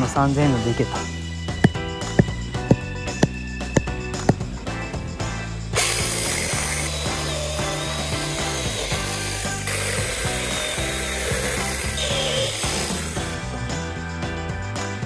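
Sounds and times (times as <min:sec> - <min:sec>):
mini chainsaw cutting wood: 0:05.8 - 0:13.4.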